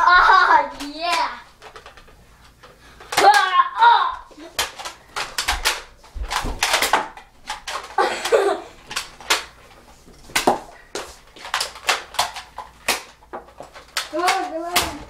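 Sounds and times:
toy blaster plastic clicks: 3.1s - 3.6s, 4.6s - 9.5s, 11.4s - 13.2s, 13.8s - 15.0s.

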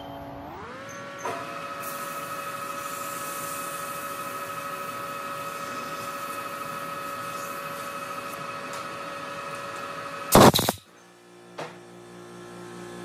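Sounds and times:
lathe spindle whine: 0.0s - 10.6s
compressed air blast: 10.3s - 10.8s.

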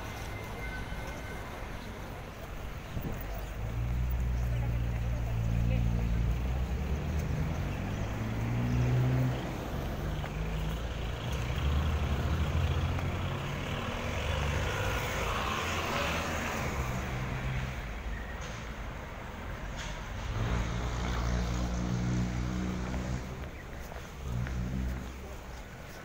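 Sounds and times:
traffic noise: 0.0s - 26.0s
vehicle engines running: 0.0s - 26.0s.

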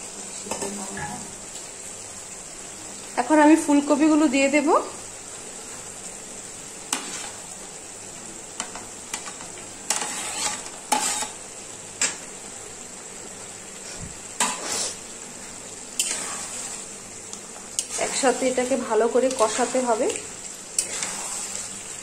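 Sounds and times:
spice paste sizzling in a pan: 0.0s - 22.0s
spatula scraping a pan: 6.9s - 7.5s, 8.6s - 11.4s, 13.8s - 15.1s, 15.9s - 17.1s, 17.7s - 22.0s.

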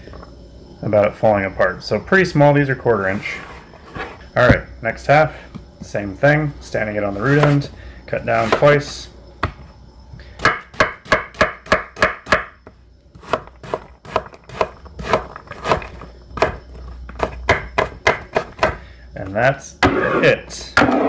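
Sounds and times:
knife chopping on wooden board: 10.4s - 12.5s, 13.2s - 16.6s, 17.2s - 18.8s.

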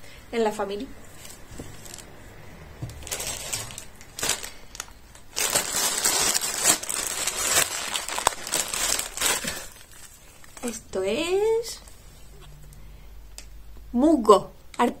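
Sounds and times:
plastic bag rustling and crinkling: 1.0s - 12.0s.

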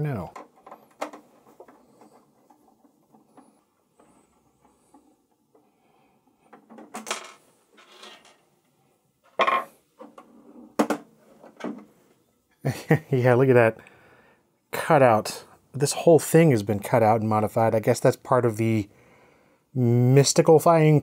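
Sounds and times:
computer parts clicking and rattling: 0.3s - 3.5s.

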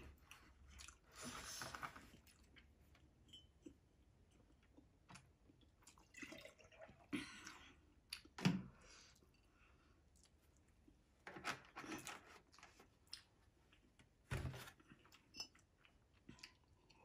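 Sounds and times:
milk pouring into glass: 5.9s - 7.1s.

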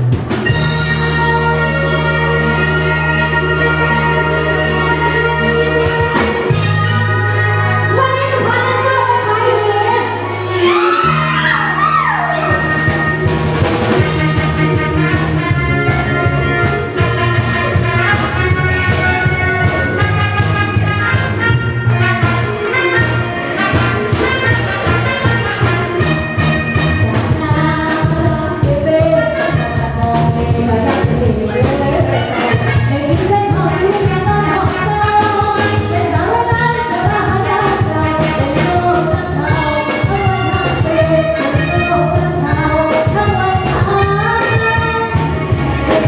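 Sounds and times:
live band with drums and brass: 0.0s - 46.0s
woman singing into microphone: 7.8s - 13.1s, 27.0s - 46.0s.

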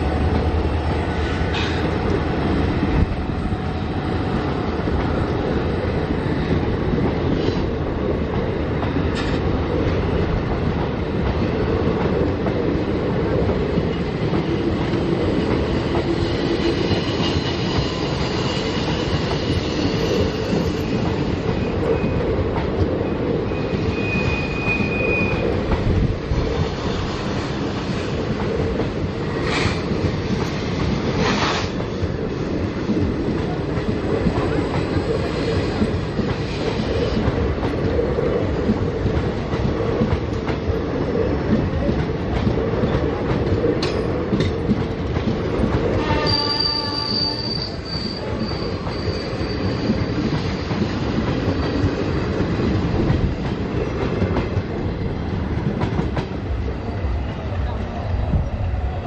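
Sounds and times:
train wheels clickety-clack: 0.0s - 59.0s
high wheel squeal: 23.5s - 25.5s, 46.0s - 50.2s.

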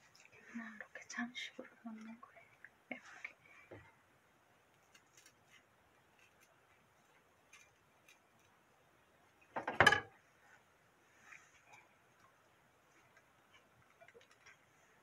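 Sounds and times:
knife clattering on wooden board: 9.6s - 10.1s.

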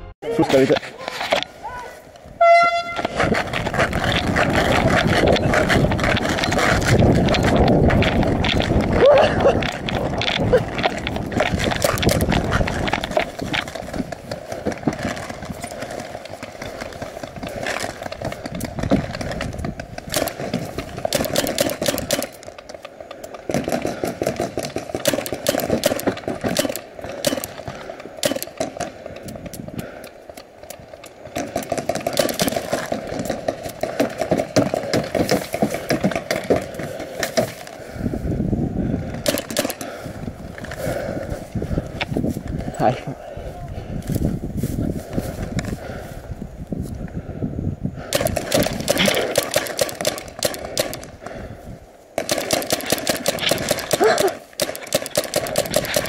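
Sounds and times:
gear rustling: 2.8s - 43.2s, 48.2s - 56.0s
paintball markers firing: 4.0s - 37.6s, 39.2s - 40.0s, 48.0s - 51.4s, 52.2s - 56.0s.

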